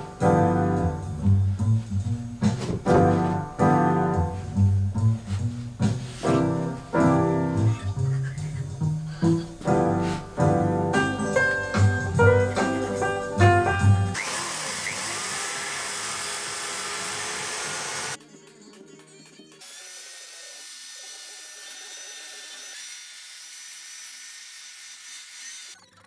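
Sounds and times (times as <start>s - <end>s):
power file sanding wood: 14.1s - 18.2s, 19.6s - 25.8s.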